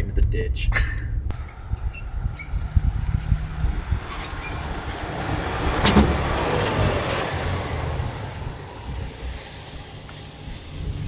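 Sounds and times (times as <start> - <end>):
pickup truck engine running: 1.3 - 11.0
tyre noise: 1.3 - 11.0.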